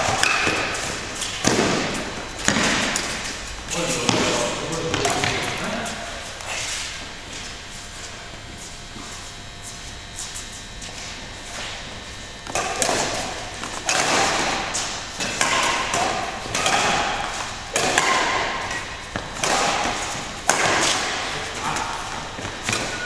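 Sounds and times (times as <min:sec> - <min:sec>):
badminton racket hitting shuttlecock: 0:00.0 - 0:07.0, 0:12.5 - 0:23.0
sports hall background din: 0:00.0 - 0:10.8, 0:12.2 - 0:23.0.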